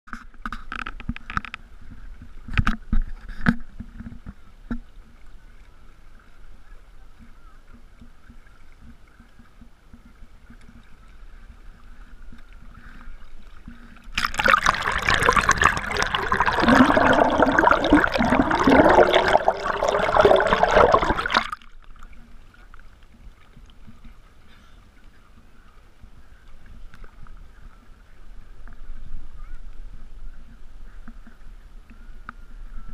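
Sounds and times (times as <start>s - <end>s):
water lapping against boat hull: 0.1s - 29.6s
water rushing and gurgling: 11.4s - 22.5s.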